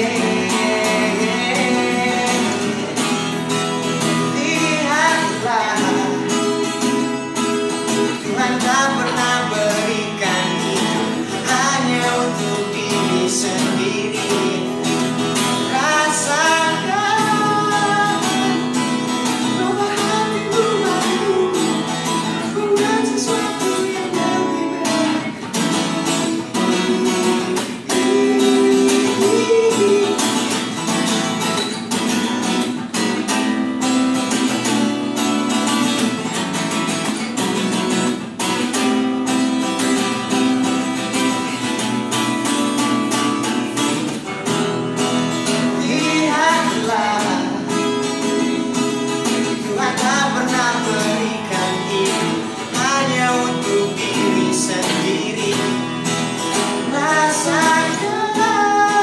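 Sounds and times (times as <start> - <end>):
man singing: 0.0 - 30.9, 42.8 - 59.0
fingerpicked acoustic guitar: 0.0 - 59.0.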